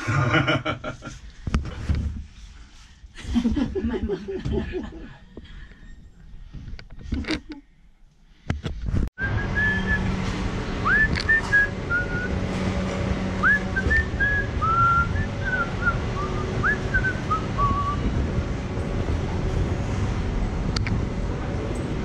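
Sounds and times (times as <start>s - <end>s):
person whistling a tune: 9.2s - 10.1s, 10.8s - 12.3s, 13.4s - 18.0s
street background hum: 9.2s - 22.0s.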